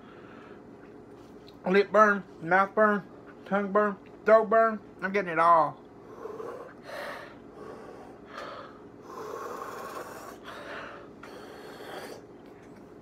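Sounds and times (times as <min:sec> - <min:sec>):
man breathing hard: 0:06.0 - 0:12.2.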